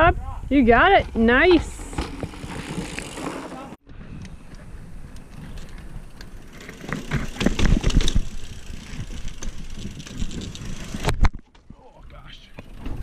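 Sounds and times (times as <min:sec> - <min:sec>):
bike tyres rumbling on rock: 0:00.6 - 0:04.0, 0:04.6 - 0:11.4
bike knocking and rattling: 0:00.7 - 0:13.0.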